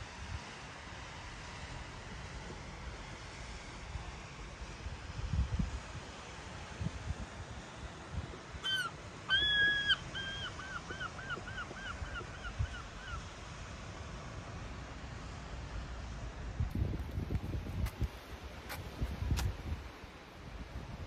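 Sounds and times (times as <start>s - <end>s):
wind rumble on microphone: 1.2s - 8.6s, 15.9s - 21.0s
gull calling: 8.6s - 13.2s.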